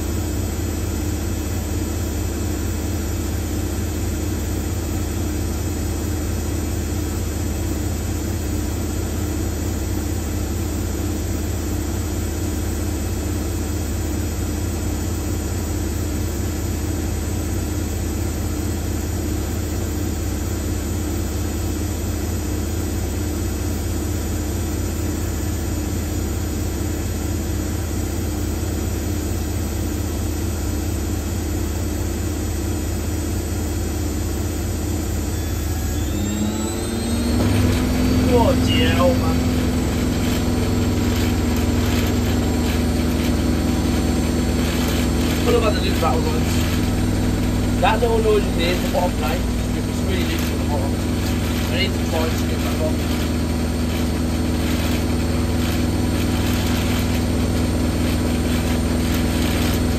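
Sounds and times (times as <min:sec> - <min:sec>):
washing machine drum spinning: 0:35.2 - 0:59.9.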